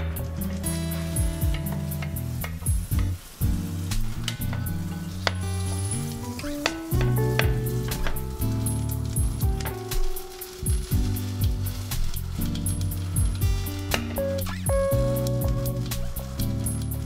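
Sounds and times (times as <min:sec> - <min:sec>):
background music: 0:00.0 - 0:17.0
sandwich sizzling in a pan: 0:00.0 - 0:17.0
tongs clicking against pan: 0:03.9 - 0:10.9.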